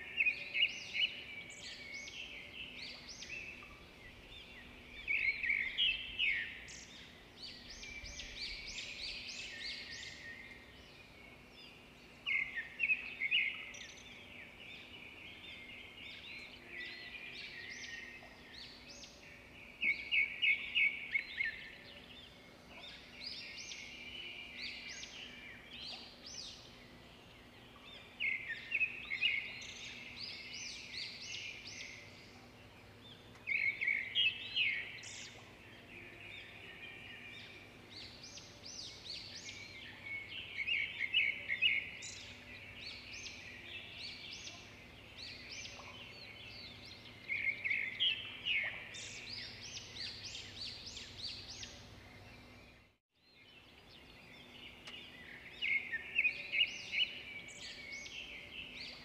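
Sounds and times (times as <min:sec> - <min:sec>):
songbird chirping phrases: 0:00.0 - 0:59.0.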